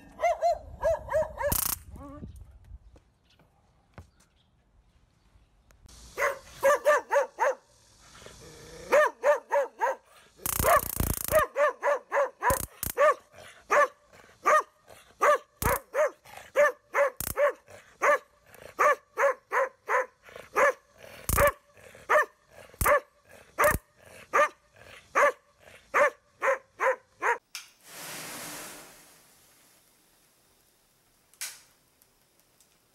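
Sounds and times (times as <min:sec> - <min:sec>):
dog barking: 0:00.1 - 0:01.6, 0:06.2 - 0:07.6, 0:08.9 - 0:27.4
sharp cracks: 0:01.4 - 0:01.9, 0:10.4 - 0:11.6, 0:12.4 - 0:13.1, 0:15.6 - 0:16.0, 0:17.1 - 0:17.5
short hiss: 0:05.9 - 0:08.6, 0:27.6 - 0:30.7
short burst of noise: 0:27.8 - 0:31.0.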